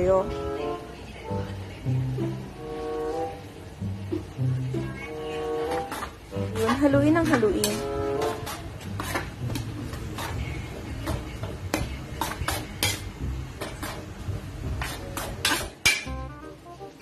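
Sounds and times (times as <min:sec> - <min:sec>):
metal spatula scraping wok: 0:05.4 - 0:16.2.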